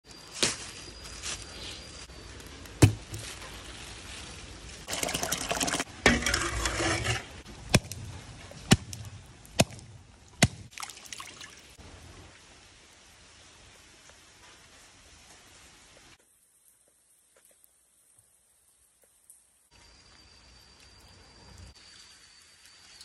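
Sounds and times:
steady hiss of rain: 0:01.0 - 0:04.9, 0:07.3 - 0:23.0
water splashing and trickling: 0:02.8 - 0:16.2, 0:18.0 - 0:23.0.

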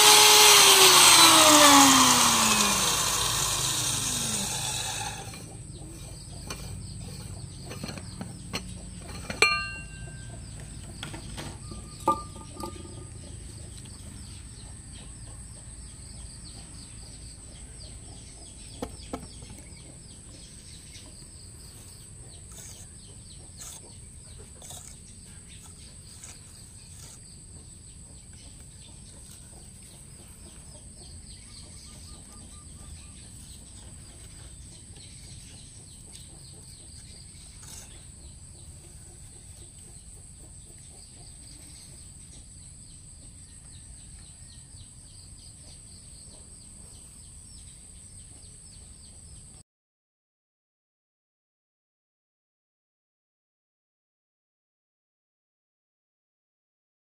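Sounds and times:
birds chirping: 0:00.3 - 0:49.6.

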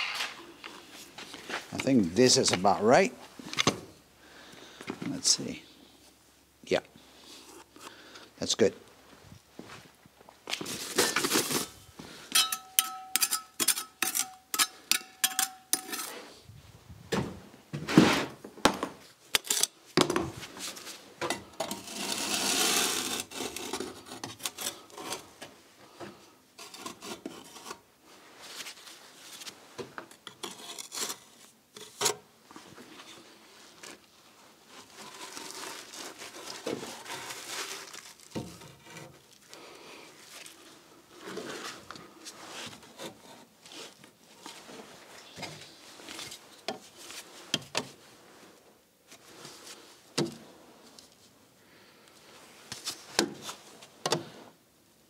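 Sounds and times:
concrete blocks scraping and knocking: 0:10.5 - 0:16.3
glue spread on concrete blocks: 0:21.7 - 0:25.3.

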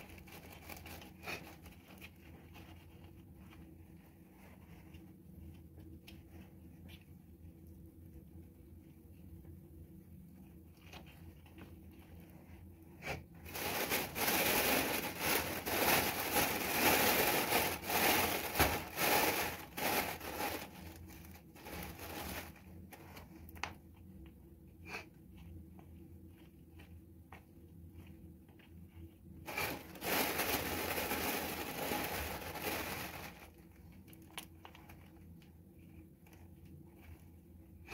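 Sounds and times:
plastic bag rustling: 0:00.0 - 0:05.0, 0:12.4 - 0:23.4, 0:29.4 - 0:35.2.

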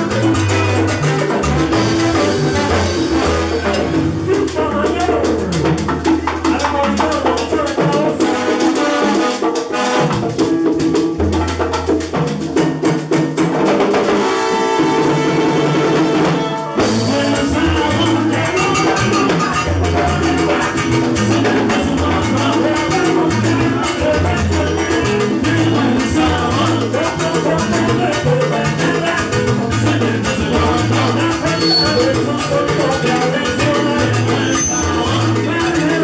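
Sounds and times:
trombones: 0:00.0 - 0:04.4, 0:08.2 - 0:10.5, 0:14.0 - 0:24.7
bass: 0:00.0 - 0:08.4, 0:16.8 - 0:36.0
hand percussion: 0:00.0 - 0:36.0
salsa band playing: 0:00.0 - 0:36.0.

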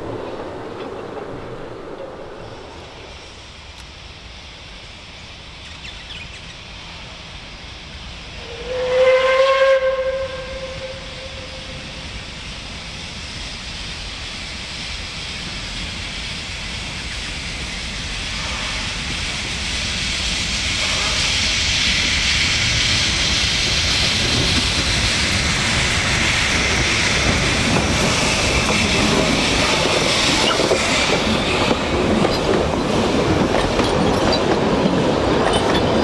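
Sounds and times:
train approaching: 0:00.0 - 0:36.0
steam locomotive whistle: 0:08.4 - 0:12.2.

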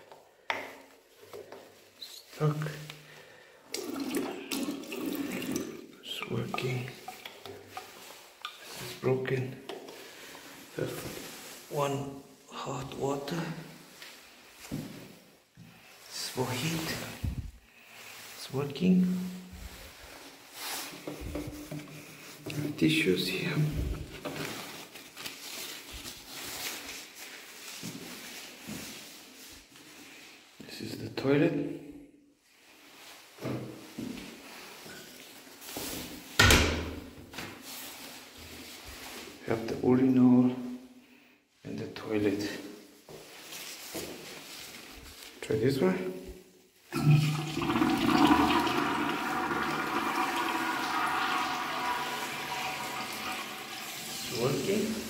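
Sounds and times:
urinal flushing water rushing: 0:03.7 - 0:06.0, 0:47.0 - 0:54.9
paper towels rustling: 0:10.0 - 0:12.5, 0:13.5 - 0:22.5, 0:23.4 - 0:30.6, 0:32.4 - 0:36.4, 0:37.3 - 0:39.7, 0:42.3 - 0:45.5, 0:47.8 - 0:55.0
hissing whine in flush: 0:47.0 - 0:54.6.

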